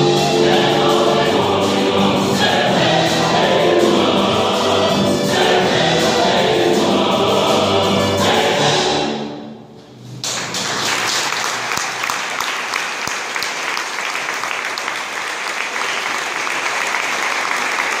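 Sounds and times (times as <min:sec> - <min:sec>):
audience applauding: 0:10.2 - 0:18.0.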